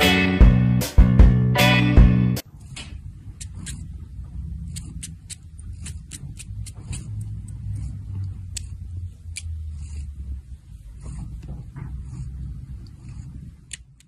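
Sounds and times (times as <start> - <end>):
cat purring: 2.4 - 14.0
wet mouth clicks of cat licking: 3.4 - 3.9, 4.6 - 9.9.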